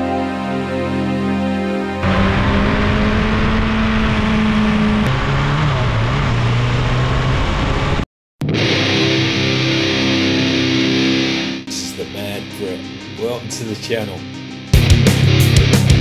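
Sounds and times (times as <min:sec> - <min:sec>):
music: 0:00.0 - 0:02.1, 0:08.4 - 0:16.0
motorcycle engine running: 0:02.0 - 0:08.0.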